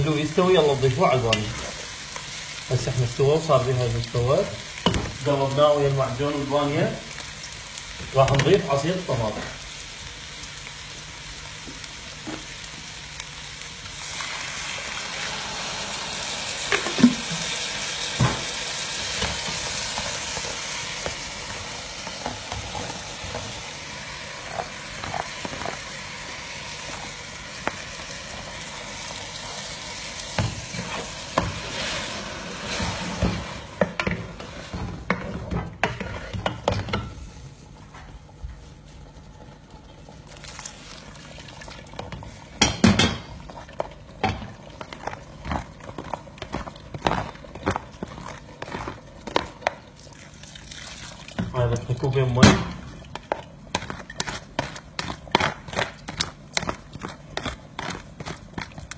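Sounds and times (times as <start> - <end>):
tomato juice sizzling in pot: 0.0 - 58.9.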